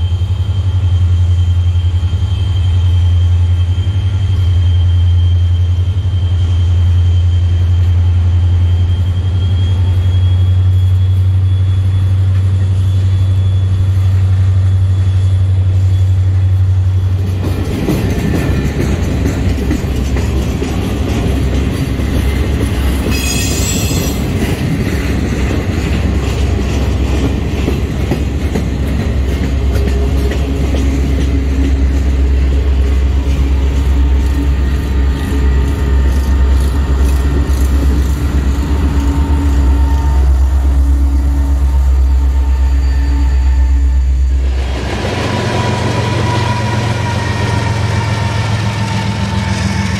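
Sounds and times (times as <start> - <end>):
wheel squeal: 0.0 - 16.4, 17.4 - 25.0, 32.8 - 49.9
freight cars rumbling on rails: 0.0 - 49.9
locomotive diesel engine: 24.2 - 49.9.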